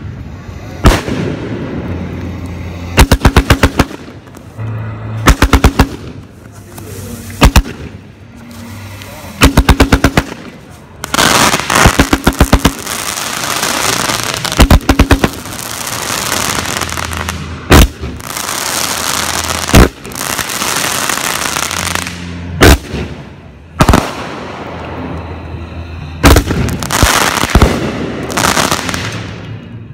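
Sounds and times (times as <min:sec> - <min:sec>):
rattling firework volleys: 0:00.0 - 0:25.4, 0:26.0 - 0:29.9
firework crackling: 0:00.0 - 0:29.9
firework shells bursting bangs: 0:02.9 - 0:04.5, 0:05.2 - 0:06.4, 0:07.4 - 0:08.1, 0:09.4 - 0:24.6, 0:26.2 - 0:29.4.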